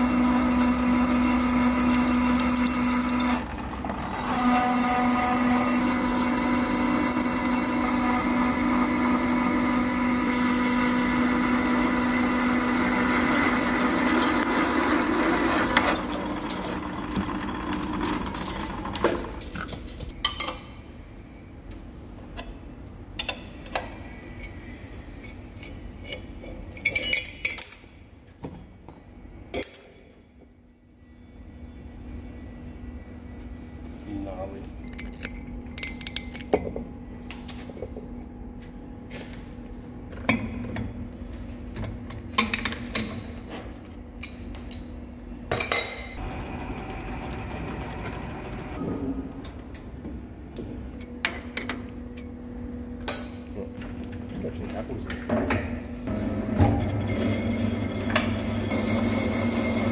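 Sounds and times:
milling machine drilling steel: 0.0 - 19.0.

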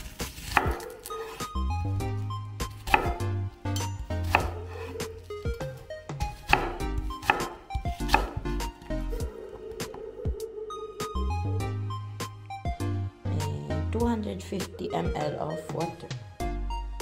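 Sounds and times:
knife chopping on wooden board: 0.1 - 1.5, 2.6 - 5.1, 6.3 - 8.7.

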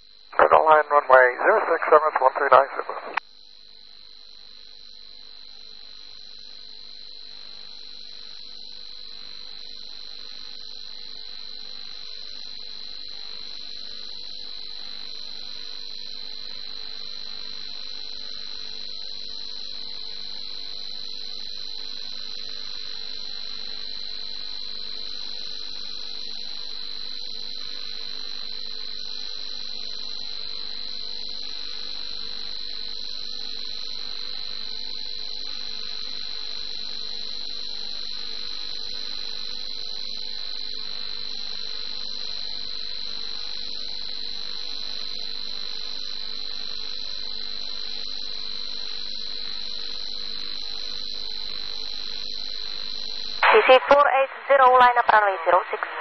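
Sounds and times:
steady high-pitched whine: 0.0 - 56.0
radio static hiss: 0.4 - 3.2, 53.4 - 56.0.

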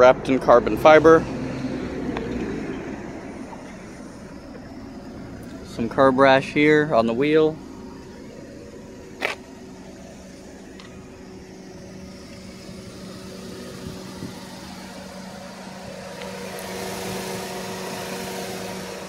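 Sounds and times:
car engine idling: 0.0 - 19.0
cooling fan rushing hiss: 9.7 - 19.0.

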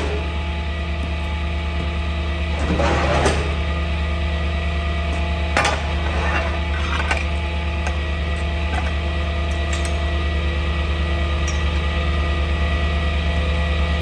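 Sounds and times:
metal clanks and scrapes: 2.5 - 3.6, 5.5 - 7.4.

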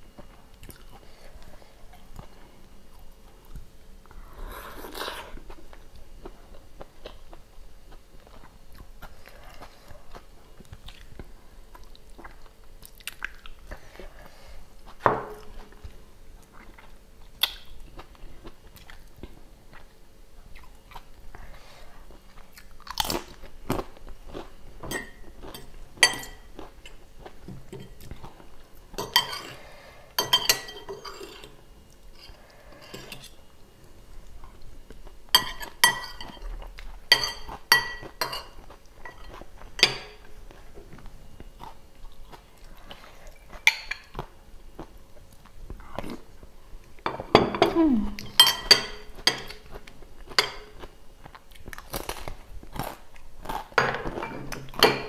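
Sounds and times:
cutlery clinking on plate: 24.8 - 26.5, 29.0 - 29.6, 30.2 - 31.5, 35.4 - 36.4, 37.1 - 40.2, 47.1 - 49.6, 53.8 - 55.0.

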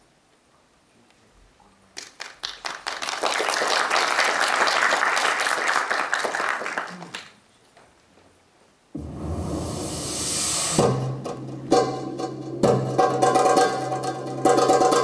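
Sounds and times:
audience applauding: 2.0 - 7.4.

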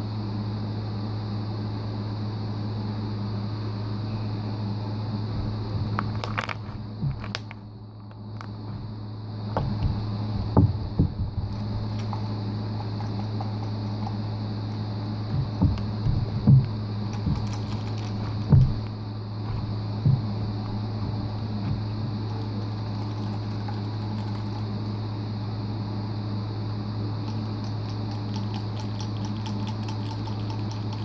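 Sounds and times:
steady low hum: 0.0 - 31.0
slime squelching: 9.8 - 25.0.

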